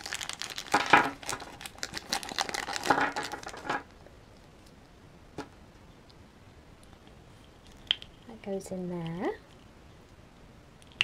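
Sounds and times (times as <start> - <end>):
plastic bag crinkling: 0.0 - 4.7.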